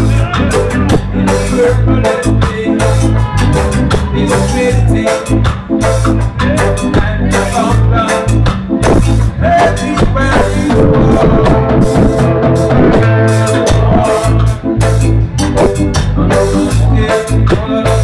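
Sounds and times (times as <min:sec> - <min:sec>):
bass line: 0:00.0 - 0:18.0
drum kit beat: 0:00.0 - 0:18.0
live band music: 0:00.0 - 0:18.0
held chord: 0:10.7 - 0:14.8.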